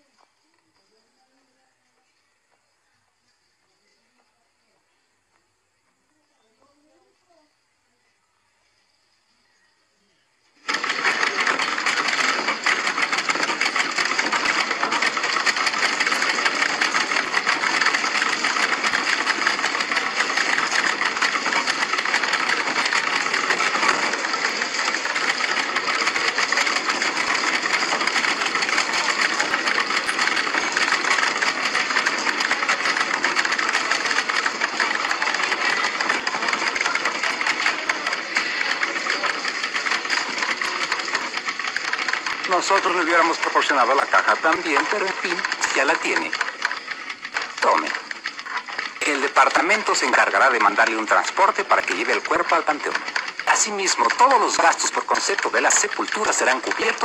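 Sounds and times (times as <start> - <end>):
typewriters clattering: 10.6 - 57.0.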